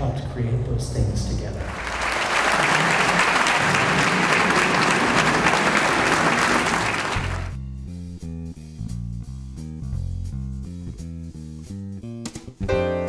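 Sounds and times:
audience applauding: 0:01.6 - 0:07.6
music with steady bass line: 0:07.2 - 0:13.0.

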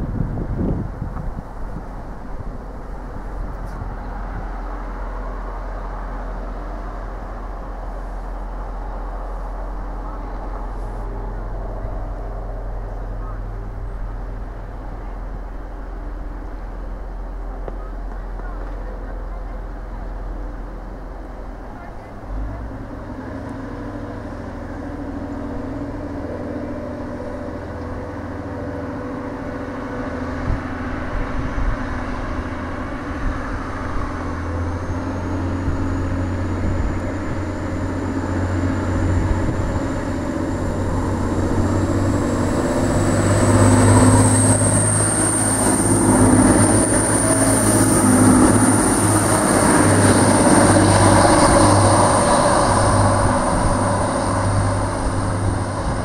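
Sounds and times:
diesel train engine pulling away: 0:00.0 - 0:56.0
high whine rising in pitch: 0:24.3 - 0:56.0.

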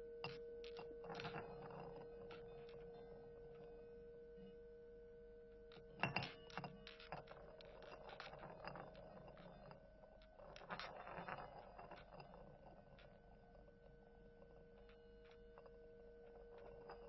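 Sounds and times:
sustained ringing tone: 0:00.0 - 0:10.1, 0:11.4 - 0:17.0
light taps on bowls: 0:06.0 - 0:09.7.

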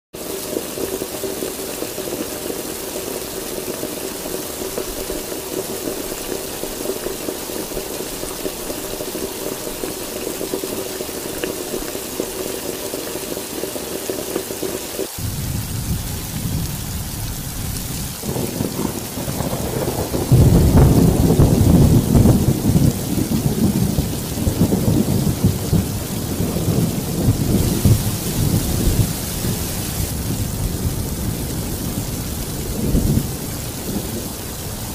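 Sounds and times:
heavy rain falling: 0:00.1 - 0:34.9
low thunder rumble: 0:15.1 - 0:34.9.

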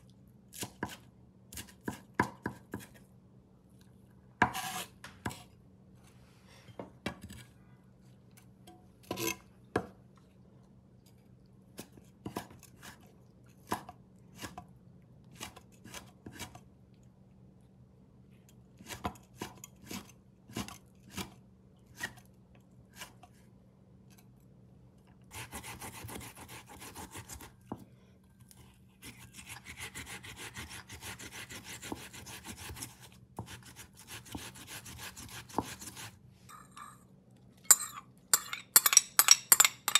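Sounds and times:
knife chopping on wooden board: 0:01.6 - 0:03.0, 0:04.4 - 0:05.4, 0:29.0 - 0:36.1.

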